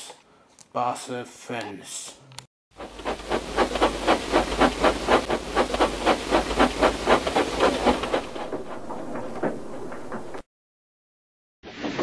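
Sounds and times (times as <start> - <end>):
toy train chuffing: 2.8 - 8.2.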